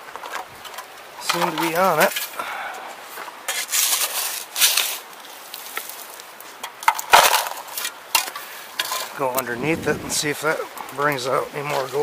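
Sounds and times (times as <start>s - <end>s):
bushes rustling: 0.0s - 12.0s
shovel digging into gravelly soil: 3.4s - 6.2s.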